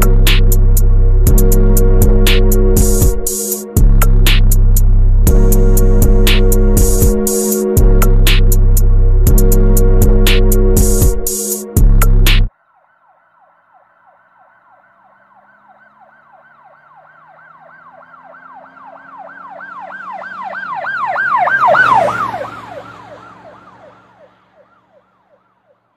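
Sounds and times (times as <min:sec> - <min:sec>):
vehicle engine: 0:00.0 - 0:12.5, 0:14.0 - 0:25.9
emergency siren yelping: 0:12.5 - 0:25.9.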